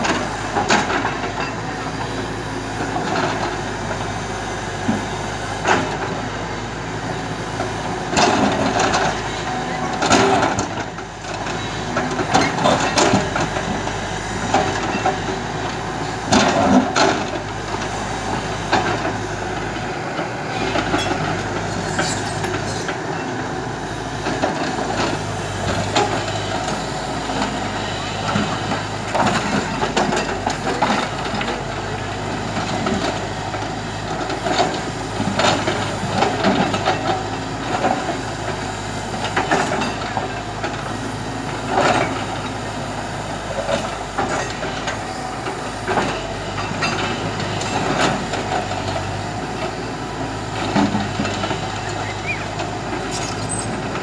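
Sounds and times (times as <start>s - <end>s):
diesel engine running: 0.0s - 54.0s
bucket scraping stones and gravel: 53.1s - 54.0s.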